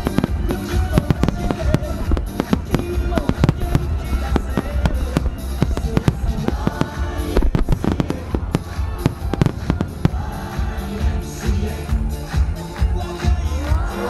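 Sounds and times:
firework shells bursting: 0:00.0 - 0:10.6
music: 0:00.0 - 0:14.0.

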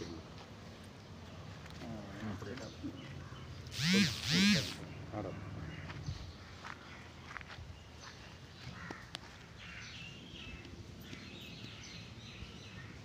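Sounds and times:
crows cawing: 0:08.6 - 0:10.1.

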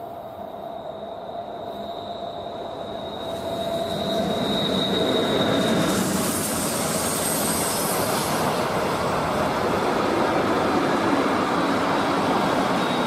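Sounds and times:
freight train rolling past: 0:00.0 - 0:13.0
wheel and rail noise: 0:00.0 - 0:13.0
thin high squeal: 0:00.4 - 0:08.4.

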